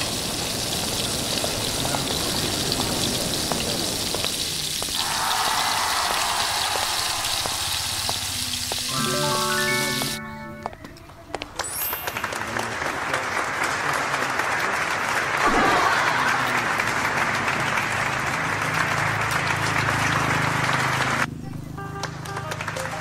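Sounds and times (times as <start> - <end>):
heavy rain falling: 0.0 - 10.2.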